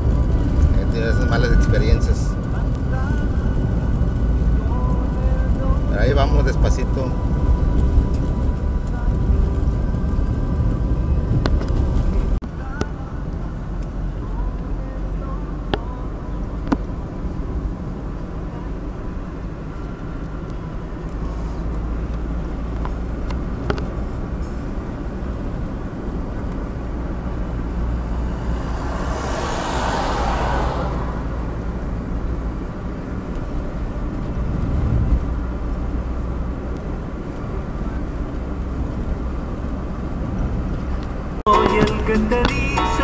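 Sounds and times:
car engine and tyre rumble: 0.0 - 43.0
rushing noise: 26.7 - 32.9.

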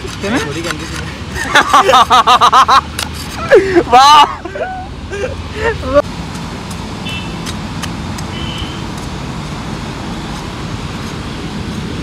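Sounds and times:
hand hoe chopping dry soil: 0.0 - 1.1, 6.3 - 9.2
road traffic hum: 0.0 - 12.0.

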